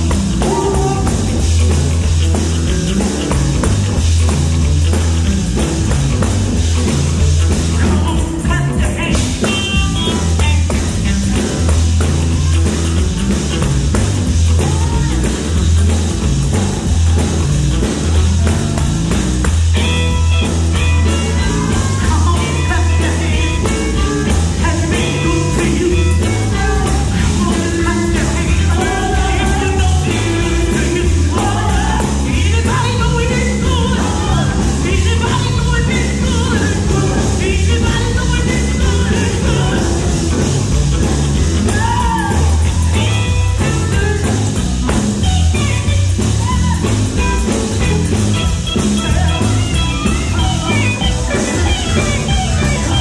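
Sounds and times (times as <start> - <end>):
electric guitars: 0.0 - 53.0
strong bass: 0.0 - 53.0
vocal group singing gospel: 24.6 - 40.5.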